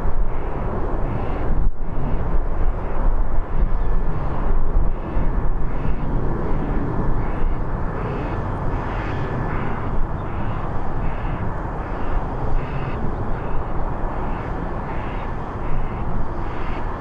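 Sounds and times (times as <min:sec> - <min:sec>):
jet engine rumble: 0:00.0 - 0:17.0.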